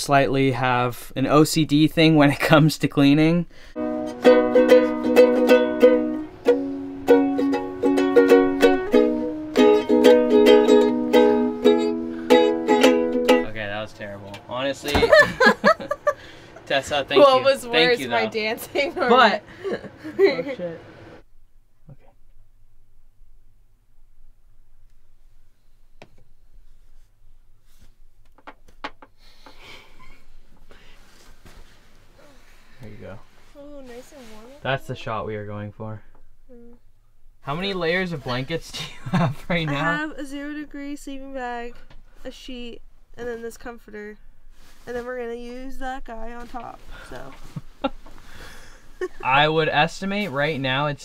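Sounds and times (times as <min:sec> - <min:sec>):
low steady hum: 0:00.0 - 0:28.2, 0:29.6 - 0:51.0
ukulele strumming chords: 0:03.8 - 0:13.8
bedding and clothing rustling: 0:14.4 - 0:20.7, 0:29.3 - 0:35.2, 0:37.6 - 0:40.2, 0:41.2 - 0:51.0.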